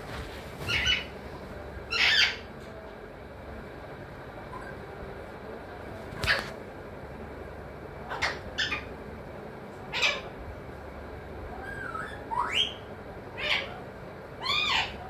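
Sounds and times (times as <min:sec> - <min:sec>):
parakeet calling: 0:00.7 - 0:01.1, 0:01.9 - 0:02.5, 0:08.1 - 0:08.9, 0:09.9 - 0:10.4, 0:11.6 - 0:13.8, 0:14.4 - 0:15.0.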